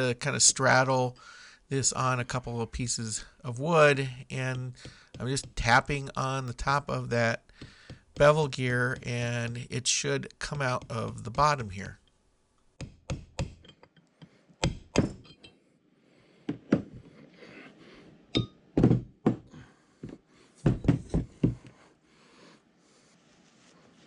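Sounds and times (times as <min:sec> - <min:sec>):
metallic ring: 0:15.2 - 0:15.6, 0:18.3 - 0:18.6.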